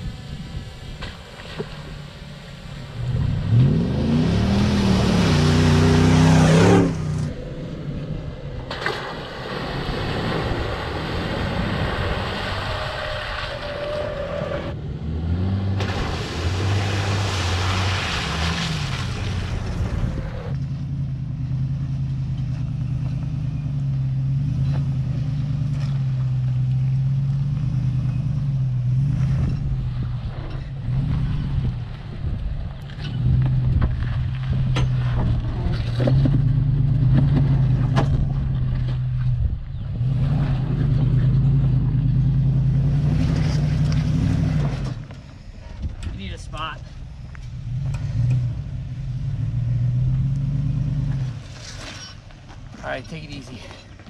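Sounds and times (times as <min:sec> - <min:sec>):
car engine revving: 0:00.0 - 0:32.0, 0:32.8 - 0:45.2, 0:46.8 - 0:52.5.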